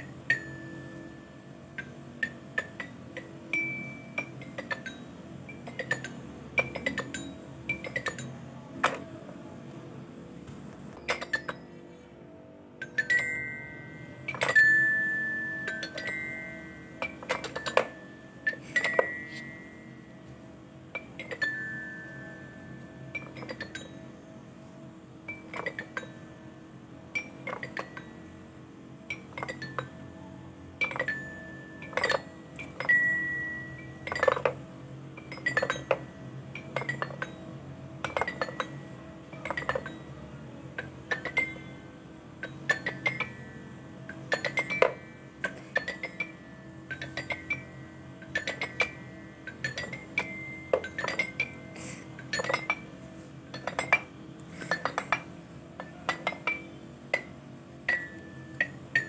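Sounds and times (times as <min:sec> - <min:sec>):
plucked bell-like music: 0:00.2 - 0:09.0, 0:12.8 - 0:24.4, 0:30.8 - 0:34.6, 0:35.2 - 0:57.3.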